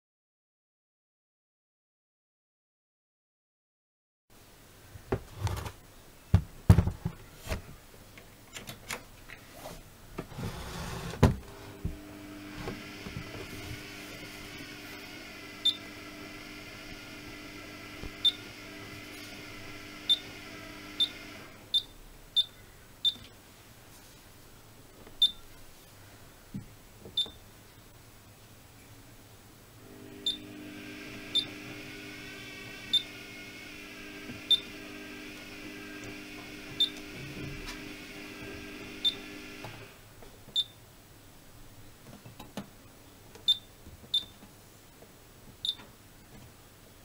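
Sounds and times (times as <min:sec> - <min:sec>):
steady hum: 0:10.3 - 0:22.3.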